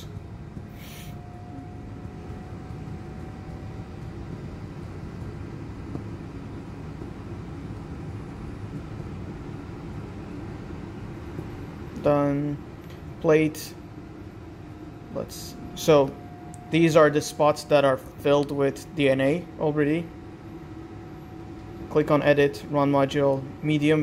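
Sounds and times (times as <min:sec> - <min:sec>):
air handling hum and hiss: 0:00.0 - 0:24.0
faint thin tone: 0:00.8 - 0:02.5.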